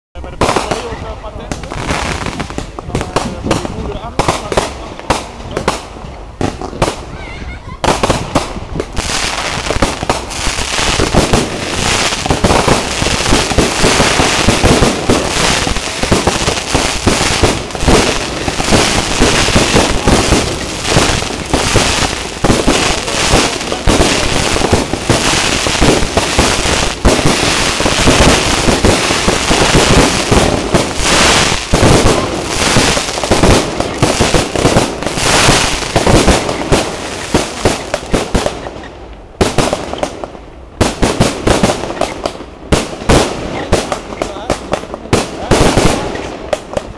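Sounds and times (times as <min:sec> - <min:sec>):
fireworks shells bursting: 0:07.8 - 0:38.9.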